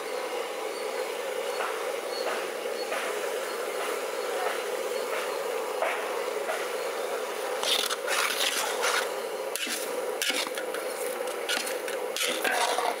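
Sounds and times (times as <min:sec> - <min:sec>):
metal ladle scraping pot: 0:07.6 - 0:13.0.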